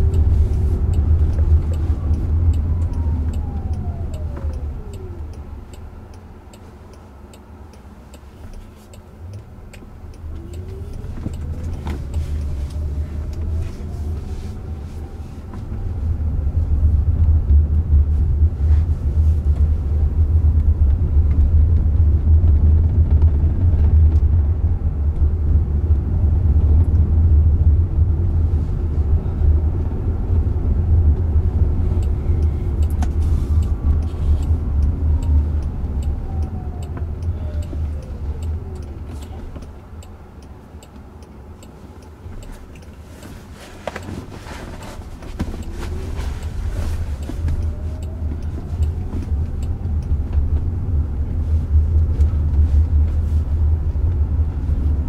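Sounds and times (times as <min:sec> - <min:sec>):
road and tyre rumble: 0:00.0 - 0:55.0.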